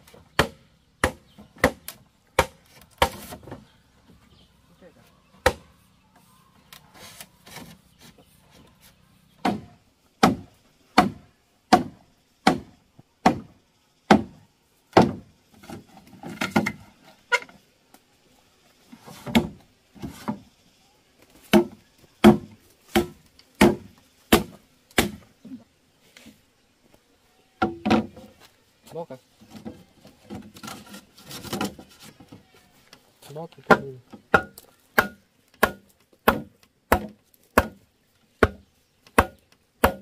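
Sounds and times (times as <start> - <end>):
chopping blows on wood: 5.4 - 5.7, 9.4 - 13.5, 14.1 - 14.4, 15.0 - 15.2, 33.6 - 37.8, 38.4 - 40.0.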